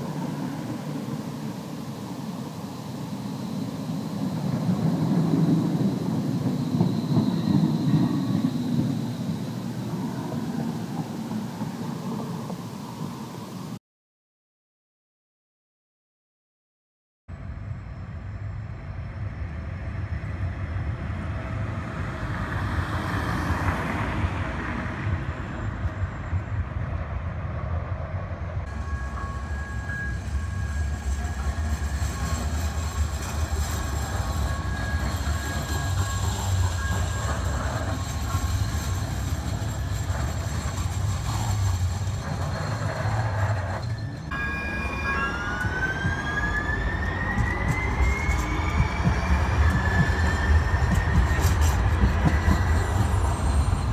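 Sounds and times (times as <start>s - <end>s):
steady high tones ringing: 0.0s - 13.8s, 28.6s - 53.9s
trains rumbling: 0.0s - 13.8s, 17.3s - 53.9s
rising electric motor whine: 28.7s - 53.9s.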